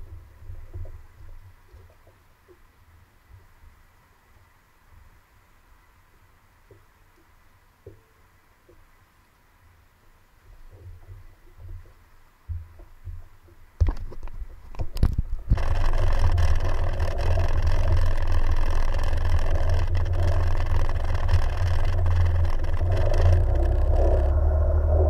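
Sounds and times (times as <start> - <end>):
jet ski running: 15.5 - 25.0.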